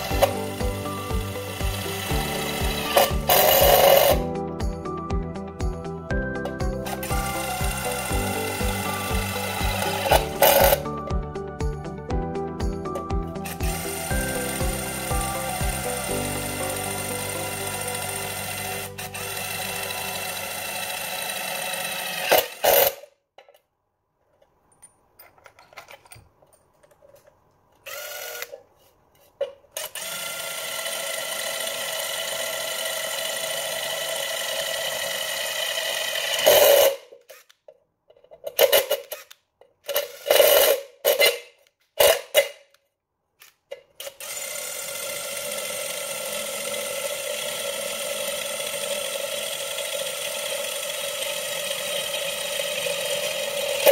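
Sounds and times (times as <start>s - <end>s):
impact driver drilling into steel: 0.0s - 4.2s, 6.6s - 10.9s, 13.4s - 23.1s, 27.8s - 28.6s, 29.8s - 37.6s, 38.6s - 42.5s, 44.0s - 53.9s
drill bit clicks: 27.8s - 28.6s.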